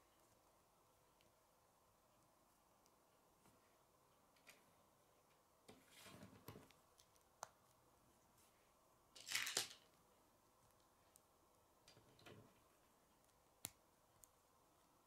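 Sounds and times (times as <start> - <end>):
plastic pieces rattling: 9.2 - 9.8.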